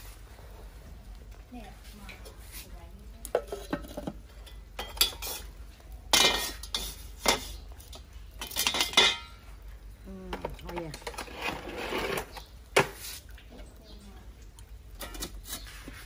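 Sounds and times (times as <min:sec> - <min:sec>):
metal tongs clinking on clay pot: 0:03.2 - 0:09.4, 0:14.5 - 0:15.6.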